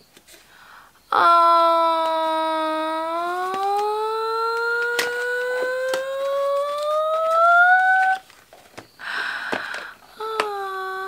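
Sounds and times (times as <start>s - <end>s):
woman's drawn-out vocal ooh: 1.1s - 8.2s, 10.2s - 11.0s
small box clicks and rustle: 4.8s - 10.5s.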